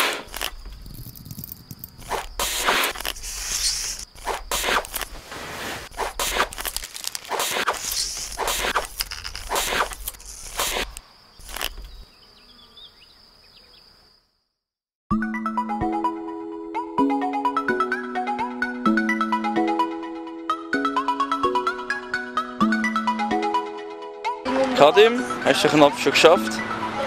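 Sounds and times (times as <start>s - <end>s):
small chirps: 0.1s - 5.2s, 5.9s - 13.9s.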